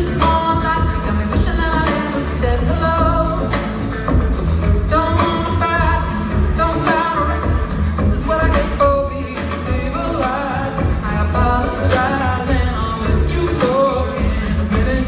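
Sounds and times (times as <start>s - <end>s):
live pop-soul band: 0.0s - 15.0s
woman singing: 0.0s - 15.0s.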